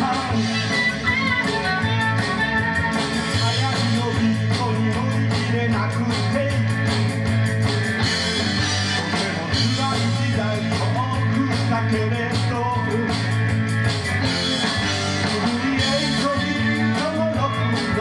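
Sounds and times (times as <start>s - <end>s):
man singing: 0.0s - 7.2s, 8.6s - 13.4s, 14.6s - 18.0s
bass: 0.0s - 18.0s
drums steady beat: 0.0s - 18.0s
electric guitars: 0.0s - 18.0s.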